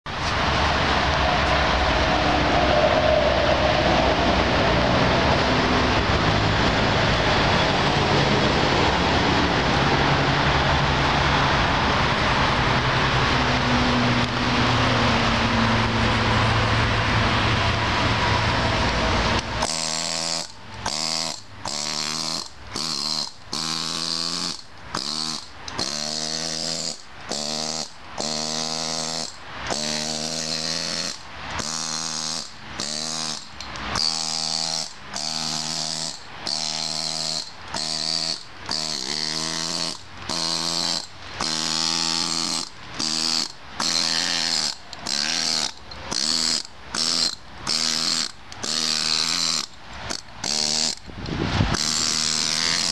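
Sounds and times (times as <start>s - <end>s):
angle grinder on stone: 17.2s - 52.9s.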